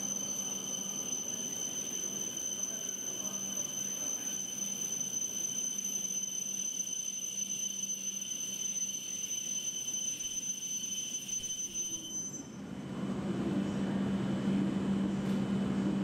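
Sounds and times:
high whine: 0.0s - 12.7s.

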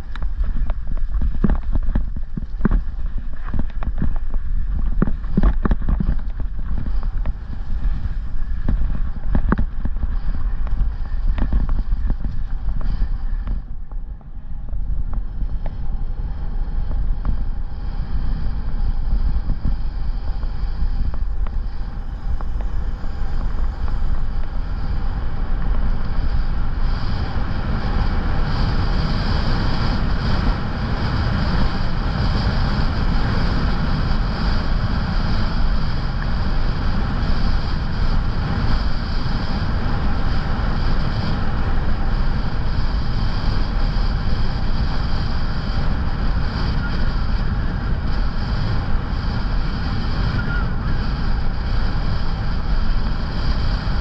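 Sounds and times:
bike rattling and knocking: 0.0s - 16.0s
bike rolling over gravel: 0.0s - 54.0s
wind on microphone: 0.0s - 54.0s.

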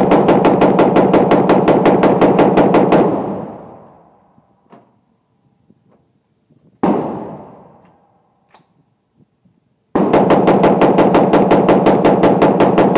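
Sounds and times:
rapid rifle fire: 0.0s - 3.8s, 6.8s - 7.8s, 10.0s - 12.9s
rifle shot with echoing tail: 6.8s - 8.2s.

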